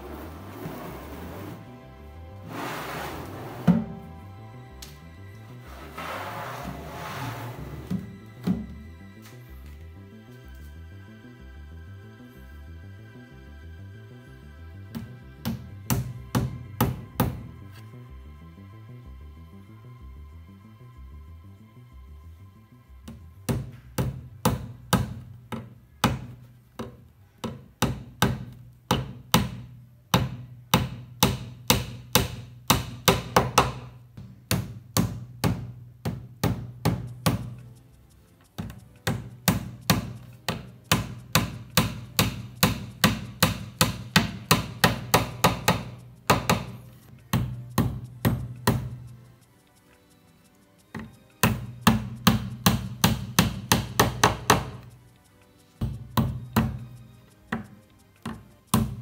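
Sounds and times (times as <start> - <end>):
hammer tapping nails: 23.0 - 37.6, 38.5 - 49.2, 51.0 - 54.9.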